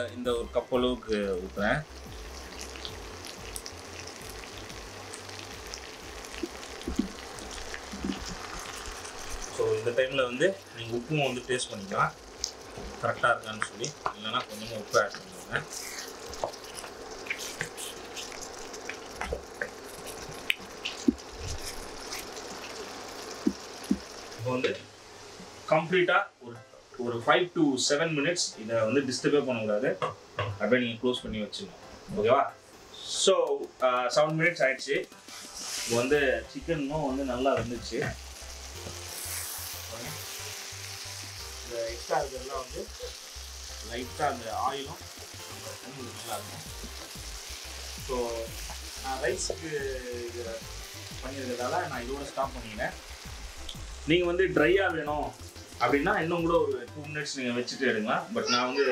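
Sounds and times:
food sizzling in oil: 0.0s - 58.9s
simmering water and oil popping: 1.8s - 24.7s
spatula stirring chicken in pan: 2.2s - 9.6s, 11.7s - 24.3s, 35.1s - 36.1s, 37.1s - 41.6s, 46.1s - 49.6s.

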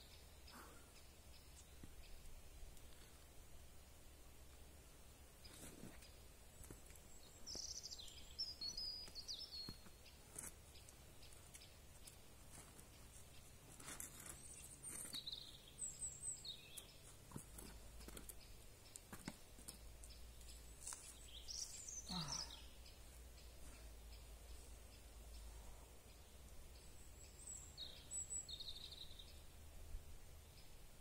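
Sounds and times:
small birds chirping: 0.0s - 31.0s
climbing shoes tapping on rock: 5.4s - 15.7s, 16.4s - 21.8s.

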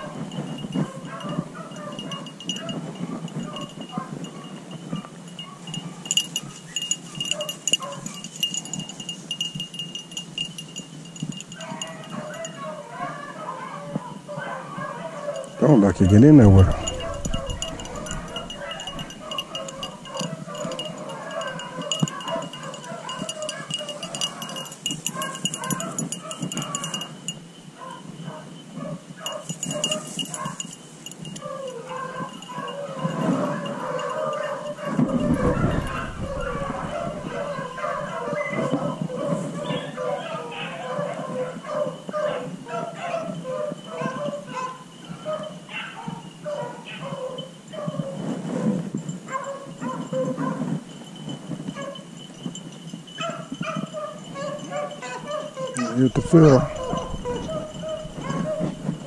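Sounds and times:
steady high ringing: 0.0s - 12.6s, 15.4s - 38.3s, 49.0s - 59.0s
small bell jingling: 0.0s - 12.8s, 15.2s - 59.0s
dogs baying: 0.0s - 59.0s
rustling and crackling in brush: 0.1s - 12.6s, 28.9s - 33.8s
light crackling: 15.4s - 34.2s.

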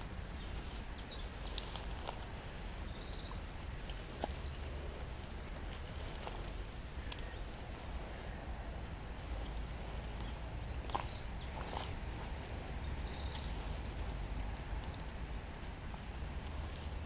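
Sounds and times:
small bird singing: 0.0s - 5.0s, 9.4s - 14.2s
steady low rumble: 0.0s - 17.0s.

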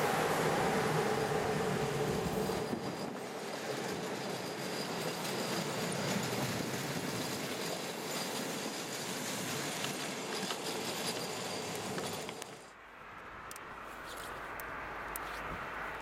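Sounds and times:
train wheels rolling on rails: 0.0s - 12.8s.

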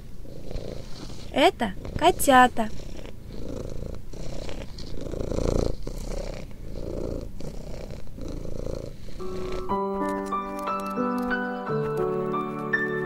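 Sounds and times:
cat purring: 0.0s - 13.0s
gentle music with sustained notes: 9.2s - 13.0s.

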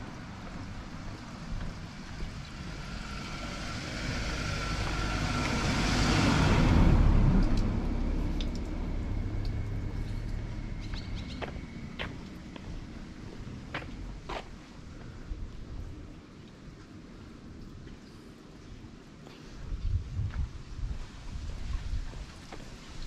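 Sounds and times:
vehicle passing by: 1.7s - 13.6s
low steady hum: 6.4s - 19.1s.

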